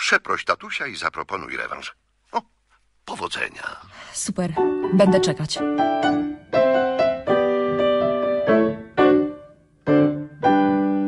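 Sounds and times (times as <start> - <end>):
piano chords and notes: 4.5 - 11.0.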